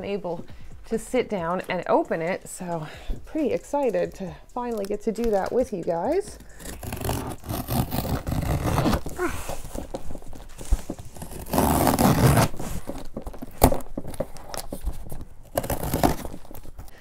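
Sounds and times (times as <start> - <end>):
packing tape slit and pulled: 6.2 - 16.9
tape tearing rasp: 6.4 - 16.9.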